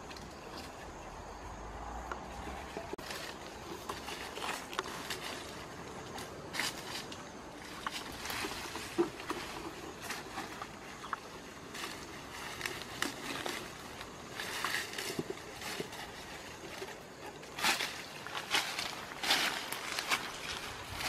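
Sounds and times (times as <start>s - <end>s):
leafy branches rustling: 0.0s - 21.0s.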